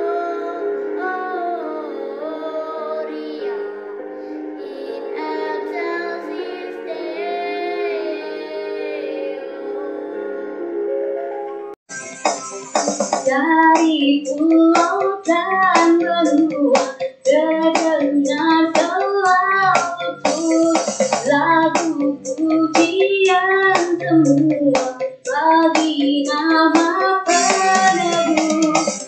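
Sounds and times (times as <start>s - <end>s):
child singing: 0.0s - 3.7s, 4.6s - 10.2s, 13.2s - 29.0s
backing track with steady beat: 11.9s - 29.0s.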